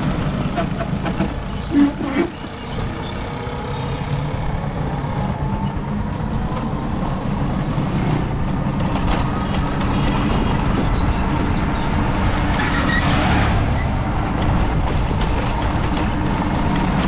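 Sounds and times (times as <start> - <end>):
vehicle engine running: 0.0 - 12.4
road noise: 0.0 - 17.0.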